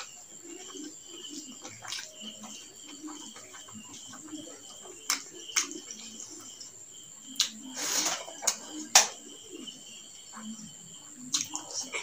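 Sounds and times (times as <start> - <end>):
cricket trill: 0.0 - 12.0
wet chewing and mouth smacks: 11.3 - 11.7.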